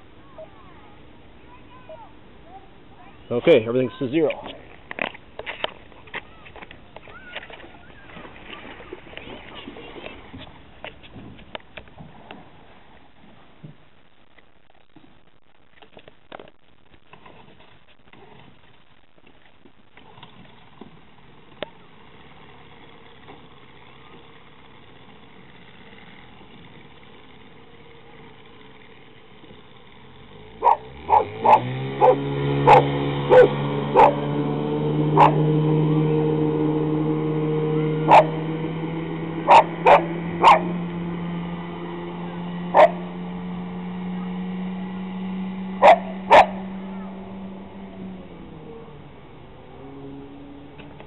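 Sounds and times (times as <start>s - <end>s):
outboard motor at full throttle: 7.0s - 12.1s, 19.9s - 51.0s
dog barking: 30.6s - 34.2s, 35.2s - 35.4s, 38.1s - 38.4s, 39.5s - 40.7s, 42.7s - 43.0s, 45.8s - 46.6s.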